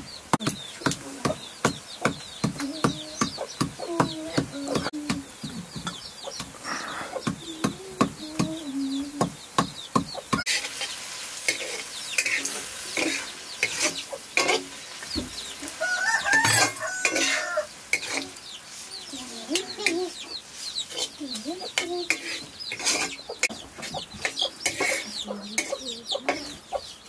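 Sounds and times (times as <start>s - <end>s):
greens sizzling in wok: 0.0s - 27.0s
hens clucking: 0.0s - 27.0s
ladle scraping in wok: 10.5s - 18.9s, 22.1s - 23.2s, 24.6s - 25.7s
rooster crowing: 15.6s - 17.8s.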